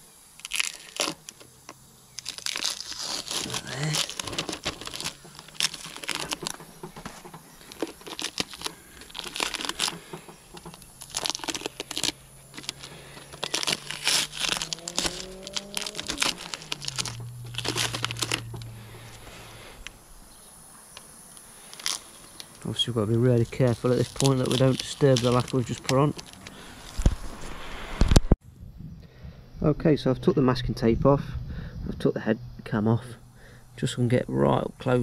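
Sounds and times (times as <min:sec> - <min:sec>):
tape tearing: 0:00.0 - 0:19.9, 0:21.3 - 0:22.7, 0:23.3 - 0:27.3
masking paper crinkling: 0:00.0 - 0:20.2, 0:20.8 - 0:27.7.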